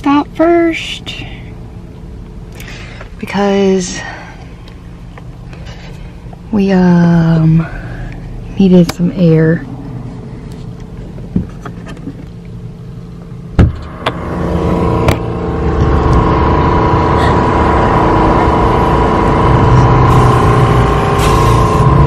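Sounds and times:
air pump compressor running: 0:02.5 - 0:08.7, 0:13.6 - 0:22.0
sharp knocks: 0:13.6 - 0:14.2.

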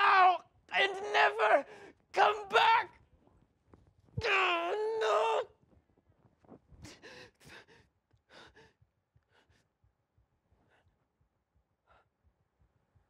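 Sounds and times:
man breathing gasps and sighs: 0:06.8 - 0:09.7.

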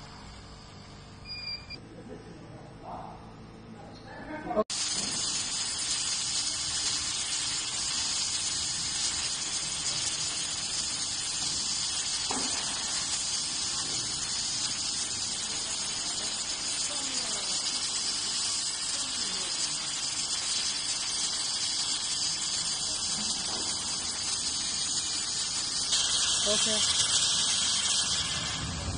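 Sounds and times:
laser cutter hissing: 0:04.7 - 0:28.9.

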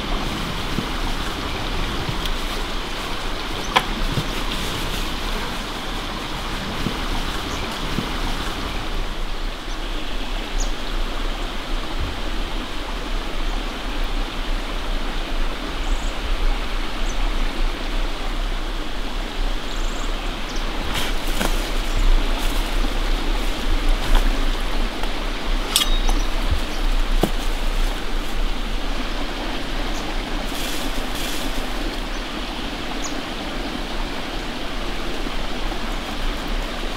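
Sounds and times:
light crackles: 0:00.0 - 0:09.0, 0:29.9 - 0:32.3
running water rushing: 0:00.0 - 0:36.9.

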